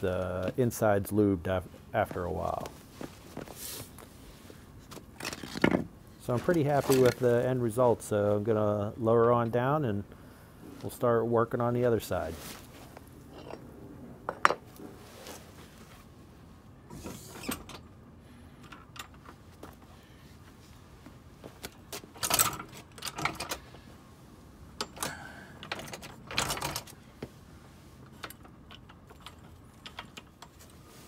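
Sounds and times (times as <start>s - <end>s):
metal tools clanking: 13.3s - 13.7s.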